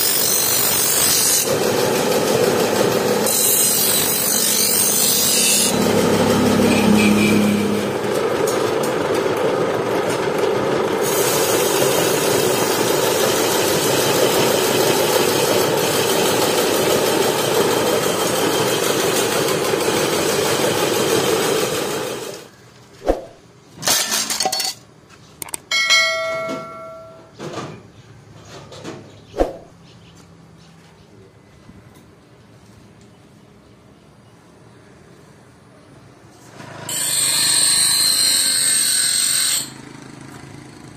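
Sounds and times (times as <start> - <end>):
loud machine whir: 0.0 - 22.5
struck metal ringing: 25.7 - 27.4.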